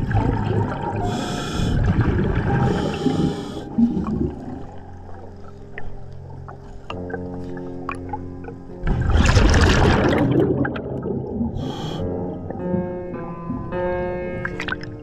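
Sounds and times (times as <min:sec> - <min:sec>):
rumble of exhaled bubbles: 0:00.0 - 0:13.7
scuba regulator hissing breaths: 0:01.0 - 0:01.9, 0:02.6 - 0:04.0, 0:11.6 - 0:12.3.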